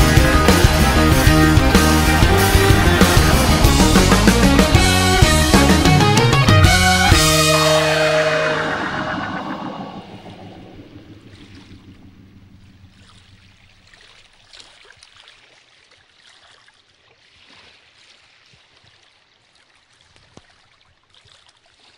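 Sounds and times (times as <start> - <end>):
song: 0.0 - 13.2
lake water lapping and trickling: 7.2 - 21.9
small water splashes: 12.8 - 21.9.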